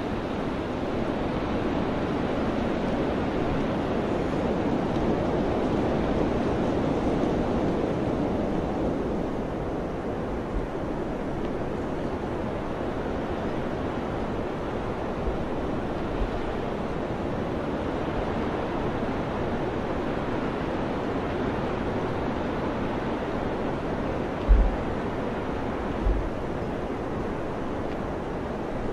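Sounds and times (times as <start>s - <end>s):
wind blowing: 0.0s - 28.9s.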